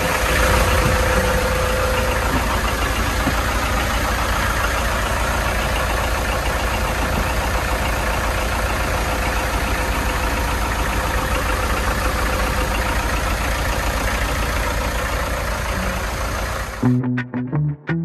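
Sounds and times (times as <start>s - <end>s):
diesel engines idling: 0.0s - 17.0s.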